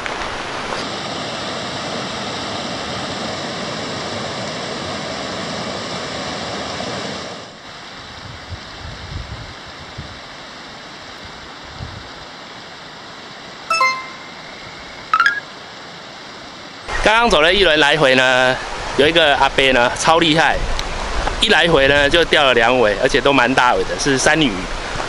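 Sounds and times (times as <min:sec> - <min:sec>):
stream rushing over rocks: 0:00.0 - 0:01.7.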